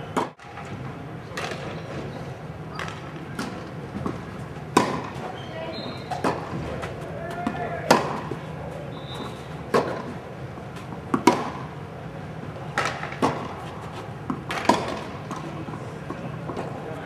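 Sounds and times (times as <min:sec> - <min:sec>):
low background hum: 0:00.0 - 0:17.0
tennis ball hit by racket: 0:02.8 - 0:05.3, 0:06.1 - 0:08.4, 0:09.7 - 0:10.2, 0:11.1 - 0:11.7, 0:12.7 - 0:13.7, 0:14.3 - 0:15.5.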